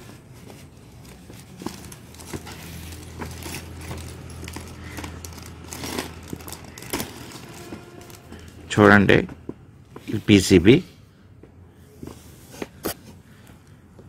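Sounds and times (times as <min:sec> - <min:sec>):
plastic bag rustling: 0:00.0 - 0:08.8.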